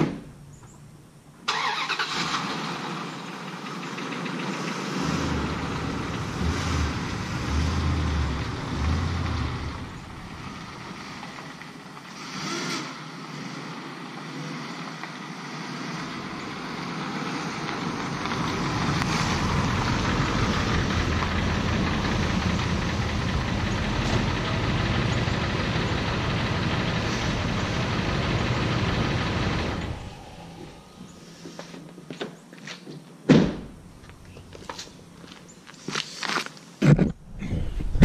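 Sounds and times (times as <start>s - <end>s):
truck engine running: 3.1s - 12.2s, 16.0s - 31.5s.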